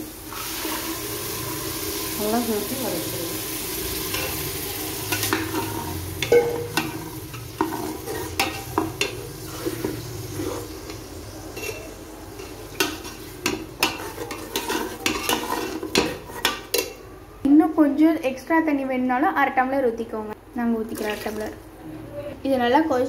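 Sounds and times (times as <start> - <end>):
low sizzle: 0.0 - 19.1
spatula scraping metal pot: 5.1 - 17.0.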